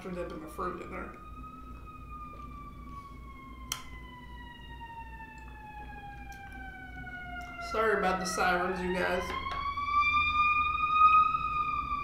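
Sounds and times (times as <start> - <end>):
distant siren wailing: 0.0 - 12.0
sharp click: 3.7 - 3.9.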